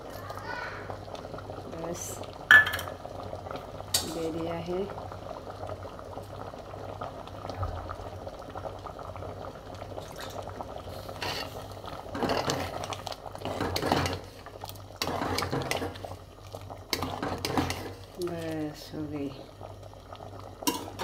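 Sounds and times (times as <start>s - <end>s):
soup boiling in metal pot: 0.0s - 21.0s
ladle sloshing and scraping: 10.0s - 18.6s.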